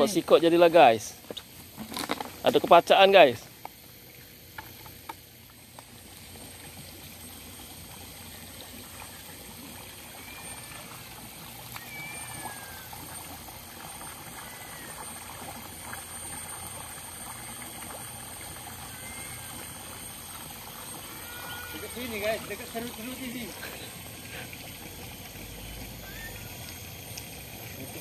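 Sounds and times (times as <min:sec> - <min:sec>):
water pouring from pipe into pond: 0:00.0 - 0:28.0
faint high chirps: 0:10.0 - 0:11.0, 0:11.7 - 0:13.0, 0:18.7 - 0:20.1, 0:20.8 - 0:23.2, 0:25.5 - 0:26.9.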